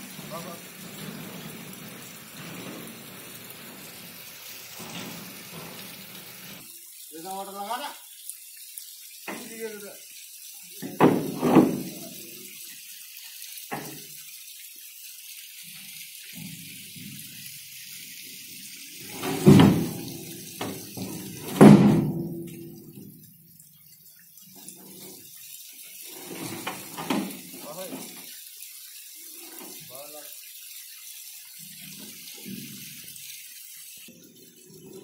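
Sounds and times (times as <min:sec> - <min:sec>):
pipes rumbling: 0:00.0 - 0:06.7, 0:19.0 - 0:23.3, 0:26.0 - 0:28.2
steady hiss: 0:00.0 - 0:23.5, 0:24.4 - 0:30.3
concrete pipes knocking hollowly: 0:10.8 - 0:12.2, 0:19.0 - 0:23.2.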